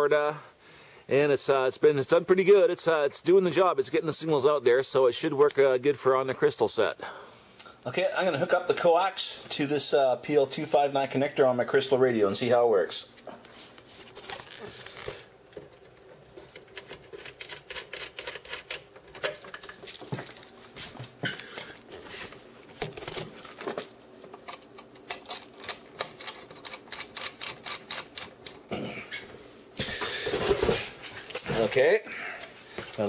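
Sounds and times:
small metallic clicks and scrapes: 15.8 - 20.5, 22.7 - 28.6.

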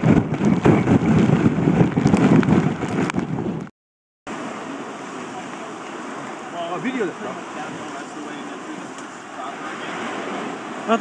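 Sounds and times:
wind buffeting microphone: 0.0 - 3.7.

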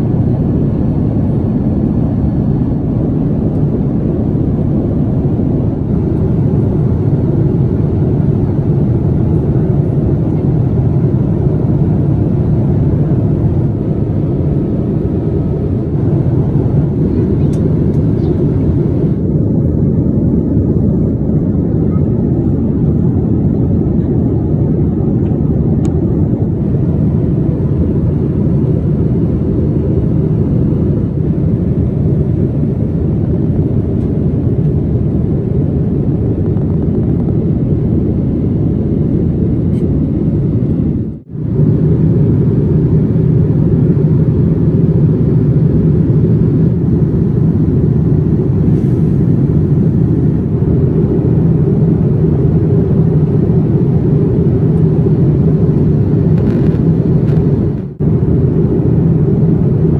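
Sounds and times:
airliner cabin rumble: 0.0 - 59.9.

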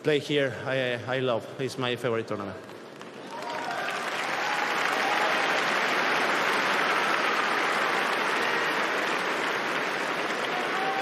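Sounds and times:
crowd applauding: 3.0 - 11.0
voices cheering: 3.3 - 11.0.

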